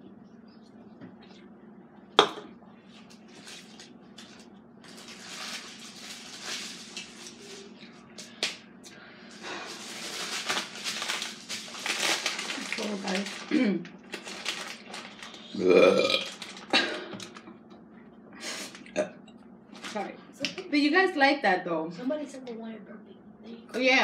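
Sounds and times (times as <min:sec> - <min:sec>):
snack wrapper rustling: 0:03.1 - 0:07.7, 0:09.4 - 0:17.4.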